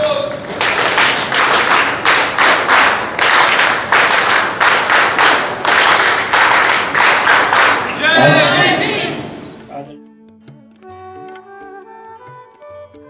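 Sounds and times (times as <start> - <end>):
rhythmic audience applause: 0.4 - 9.0.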